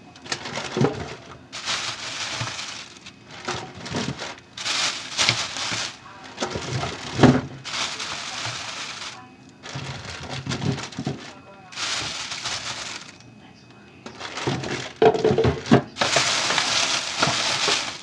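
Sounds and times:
plastic bag crinkling: 0.2 - 13.2, 14.0 - 18.0.

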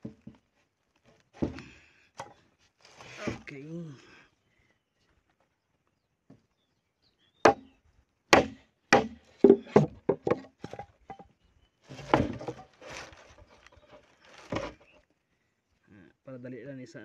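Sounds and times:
machete chopping bamboo: 7.5 - 7.7, 8.3 - 10.5, 11.9 - 13.1
bamboo crackling as it splits: 11.9 - 15.0.

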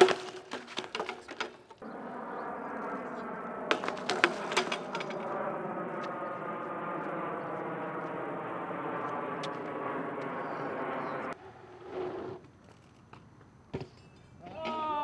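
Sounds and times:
bike crashing onto asphalt: 0.0 - 1.8, 3.7 - 5.2
knocks and rattles: 0.0 - 1.8, 3.7 - 5.3
droning hum: 0.0 - 11.4.

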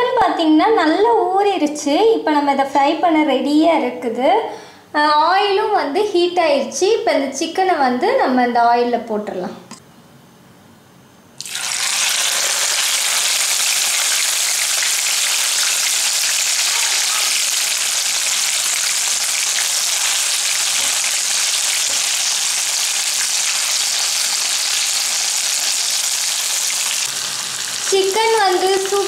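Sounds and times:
chicken sizzling in hot oil: 11.4 - 29.0.

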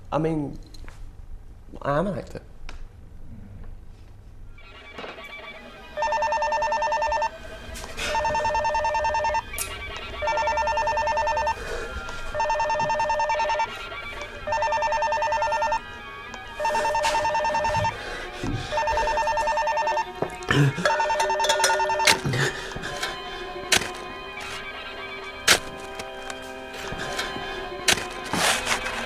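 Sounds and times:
telephone ringing two-tone trill: 4.6 - 11.6, 12.3 - 18.0, 18.6 - 22.2.

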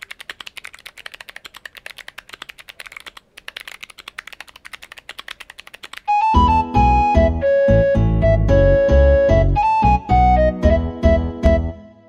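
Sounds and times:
mechanical keyboard typing: 0.0 - 6.4
piano music: 6.2 - 12.0.

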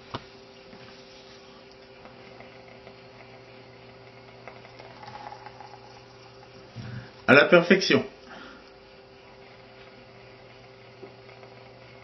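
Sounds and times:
soft breathy exhale: 8.3 - 8.7.

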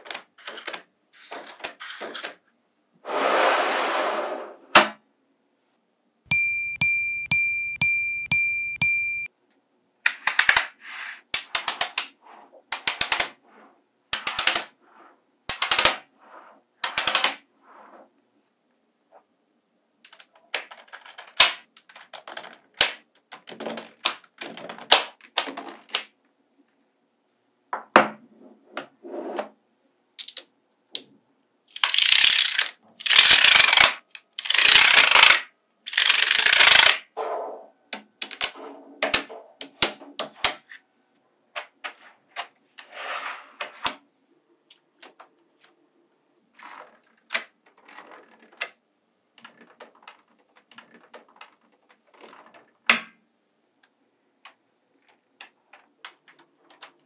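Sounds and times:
evenly spaced ticks: 6.3 - 9.3
magnetic balls clicking: 6.3 - 9.3
ringing chime: 6.3 - 9.3.

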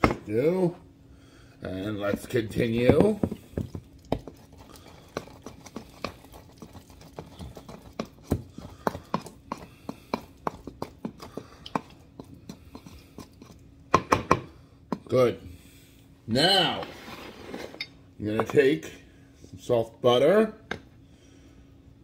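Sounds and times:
pestle knocking in wooden mortar: 2.0 - 15.1.

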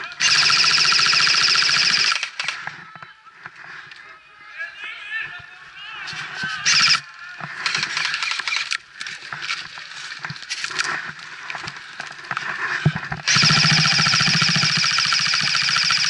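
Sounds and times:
airsoft rifle full auto burst: 0.2 - 2.6, 6.6 - 7.0, 13.3 - 16.0
branches rustling and snapping: 7.4 - 13.3.

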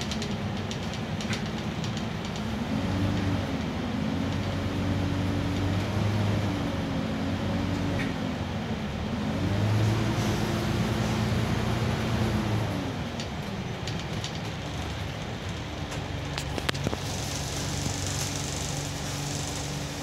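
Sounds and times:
light rattling clicks: 0.0 - 2.5, 13.2 - 20.0
bus diesel engine running: 0.0 - 20.0.

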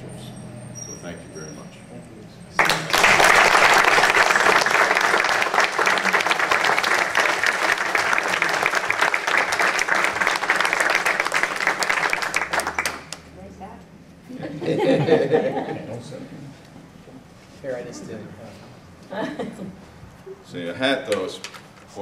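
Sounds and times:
audience applauding: 2.6 - 13.3.

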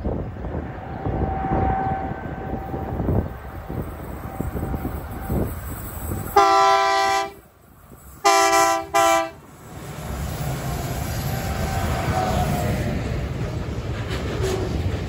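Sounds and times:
wind buffeting microphone: 0.0 - 6.6
locomotive rumble: 0.0 - 15.0
locomotive horn blasts: 6.3 - 7.4, 8.2 - 9.4.

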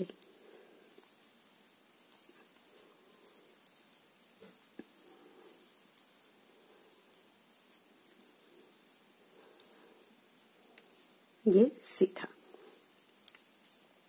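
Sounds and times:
knitting needles clicking: 0.0 - 14.0.

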